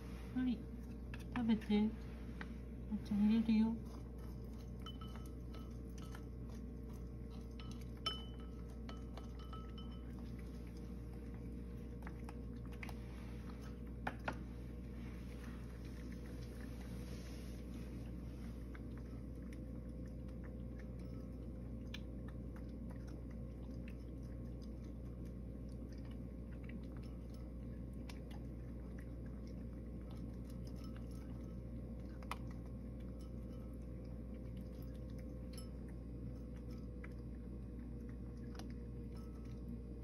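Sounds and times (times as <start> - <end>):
cat chewing food: 0.0 - 40.0
steady low hum: 0.0 - 40.0.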